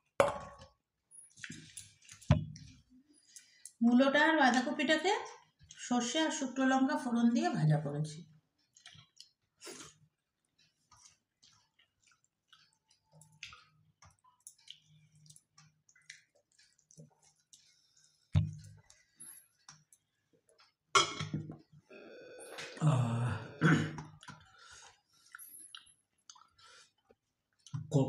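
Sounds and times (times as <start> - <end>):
chewing: 8.6 - 20.8, 24.0 - 27.8
throat sound: 21.9 - 24.4.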